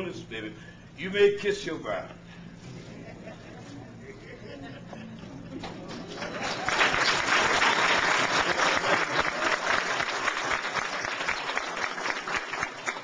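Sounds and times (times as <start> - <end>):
people applauding: 5.8 - 13.0.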